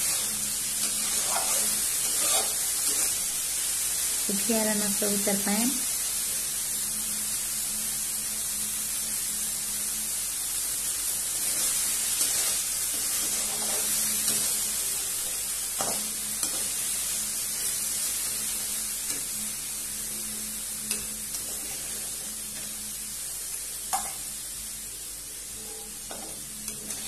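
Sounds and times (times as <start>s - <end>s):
spatula scraping a pan: 0.0s - 3.3s, 11.4s - 19.4s, 20.8s - 22.8s, 25.5s - 27.0s
food sizzling in a pan: 0.0s - 27.0s.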